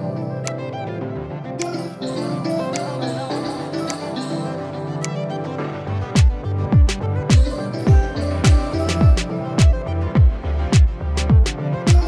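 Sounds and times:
light percussive beat: 6.2s - 12.0s.

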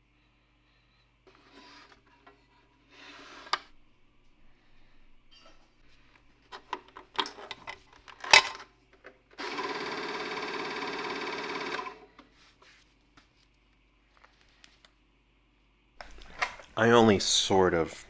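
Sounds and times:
projector motor whirring: 9.4s - 12.2s.

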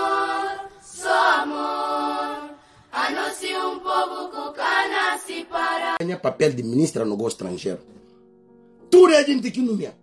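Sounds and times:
voices singing held notes: 0.0s - 6.0s.

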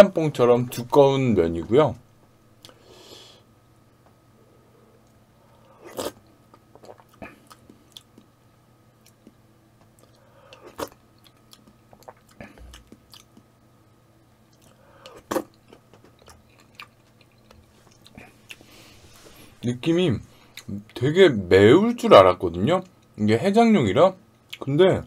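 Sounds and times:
mouth and lip clicks: 9.0s - 13.5s.

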